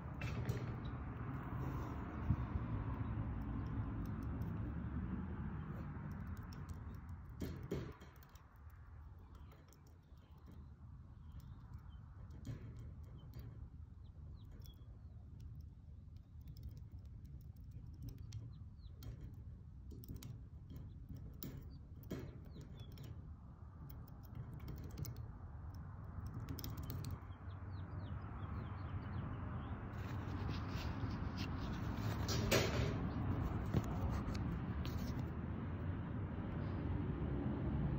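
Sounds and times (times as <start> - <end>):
birds chirping: 26.6 - 32.6.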